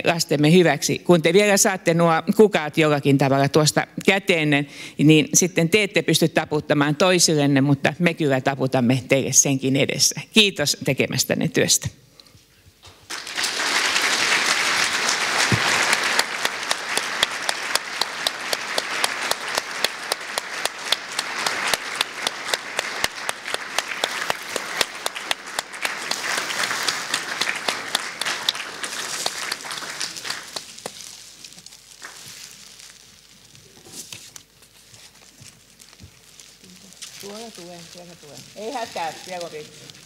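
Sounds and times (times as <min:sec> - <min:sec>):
audience applause: 0:13.1 - 0:31.2.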